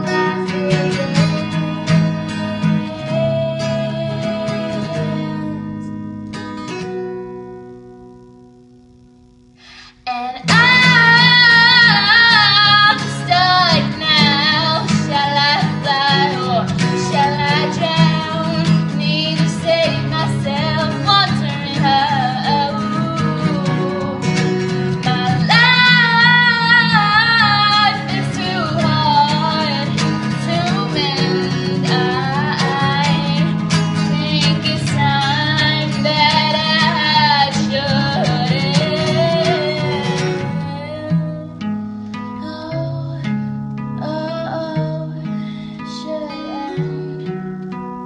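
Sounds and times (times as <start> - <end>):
woman singing with vibrato: 0.0 - 6.2, 9.6 - 41.7, 42.3 - 47.5
guitar accompaniment: 0.0 - 48.0.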